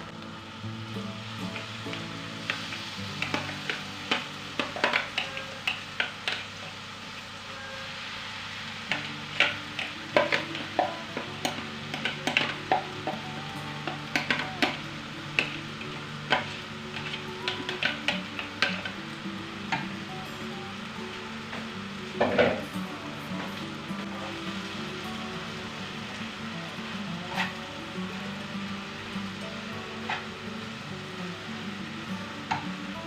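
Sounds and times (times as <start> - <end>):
onion sizzling in frying pan: 0.0 - 33.0
spoon and bowl scraping pan: 3.2 - 6.4.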